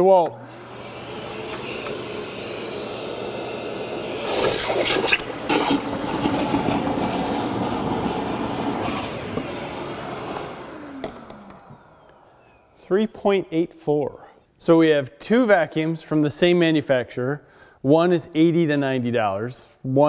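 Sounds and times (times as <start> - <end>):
shop vacuum running: 0.0 - 13.8
hose slurping water: 4.2 - 9.3.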